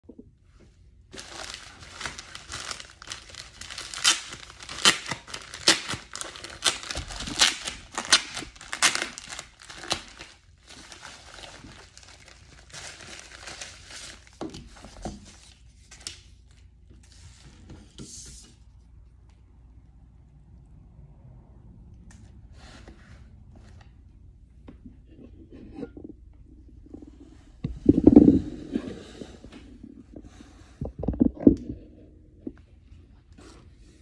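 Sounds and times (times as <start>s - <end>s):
plastic envelope crinkling and tearing: 1.1s - 16.6s
plastic rustling: 1.1s - 17.4s.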